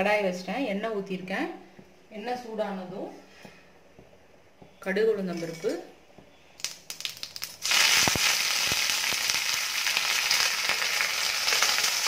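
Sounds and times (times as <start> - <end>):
leaves sizzling in oil: 6.6 - 12.0
seeds crackling in hot oil: 6.6 - 12.0.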